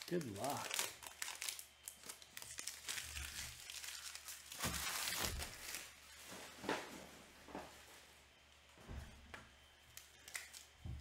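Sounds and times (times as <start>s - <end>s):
wrappers crinkling and tearing: 0.0s - 6.7s, 9.8s - 10.8s.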